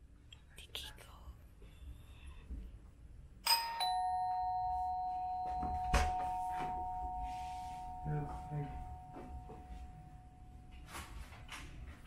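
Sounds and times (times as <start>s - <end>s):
two-tone doorbell chime: 3.4s - 11.0s.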